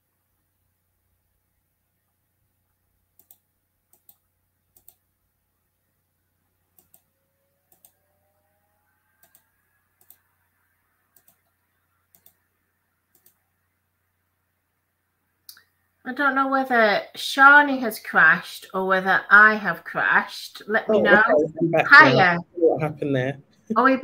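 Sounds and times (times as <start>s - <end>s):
low steady hum: 0.0s - 24.0s
computer mouse clicking: 3.2s - 5.0s, 6.7s - 7.1s, 7.7s - 8.0s, 9.2s - 10.3s, 11.1s - 12.5s, 13.1s - 13.4s.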